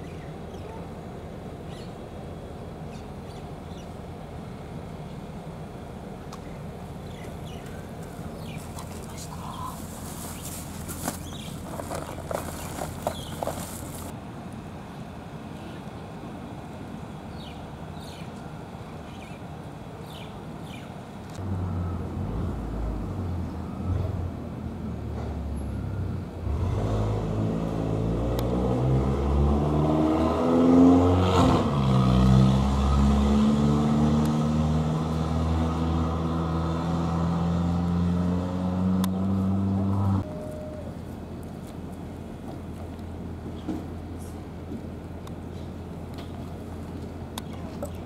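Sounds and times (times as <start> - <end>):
vehicle engine revving and idling: 8.4 - 14.1, 26.4 - 40.6.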